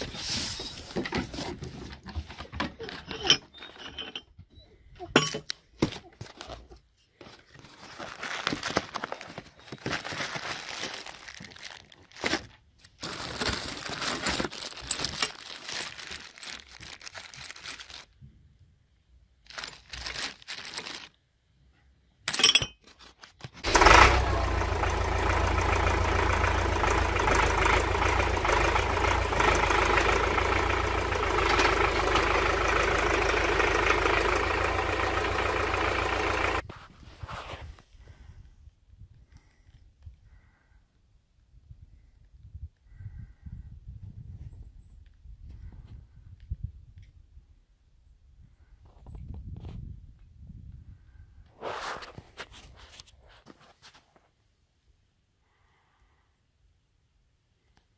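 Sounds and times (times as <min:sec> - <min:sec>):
paper and cardboard rustling: 0:00.0 - 0:03.0, 0:05.8 - 0:18.2
metal clinks and knocks: 0:02.9 - 0:04.4, 0:05.1 - 0:05.5, 0:22.3 - 0:23.0
tractor diesel engine idling: 0:23.6 - 0:36.6.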